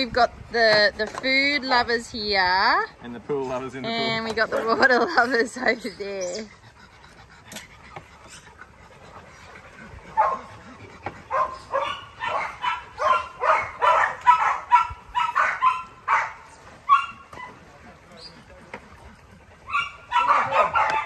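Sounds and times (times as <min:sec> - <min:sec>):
dog barking: 0:10.1 - 0:10.5, 0:11.3 - 0:17.6, 0:19.7 - 0:21.0.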